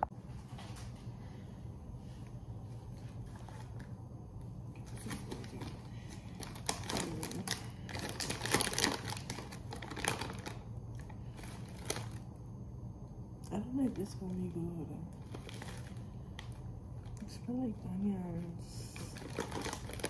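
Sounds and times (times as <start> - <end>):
low steady hum: 0.0 - 20.0
plastic packaging crinkling: 2.9 - 4.0, 4.8 - 12.4, 15.0 - 20.0.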